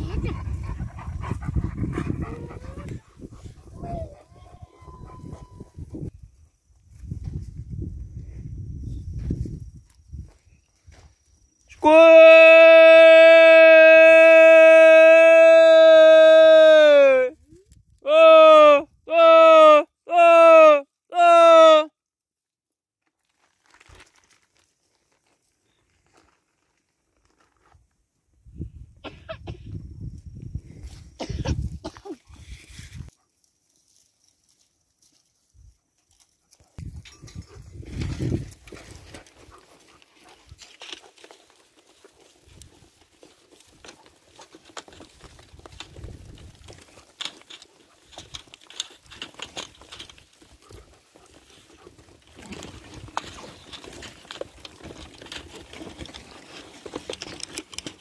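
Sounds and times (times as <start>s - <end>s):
sheep hooves clicking on dirt: 33.6s - 58.0s.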